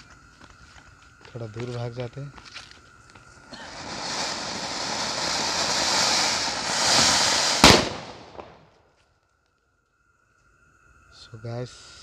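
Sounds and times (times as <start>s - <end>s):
firework hissing: 3.3s - 8.7s
firework sharp bang: 3.6s - 8.7s.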